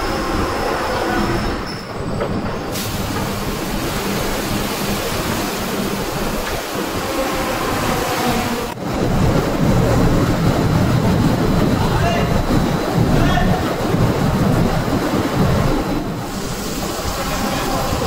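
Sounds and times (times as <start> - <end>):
machinery rumble and hiss: 2.7 - 7.9, 16.1 - 18.0.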